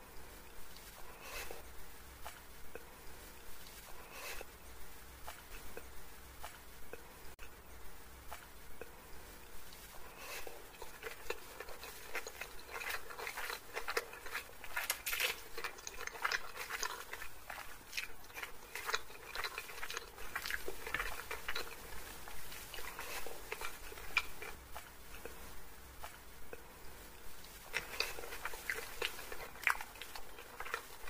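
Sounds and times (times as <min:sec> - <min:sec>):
person chewing food: 0:09.7 - 0:26.6, 0:27.4 - 0:31.0.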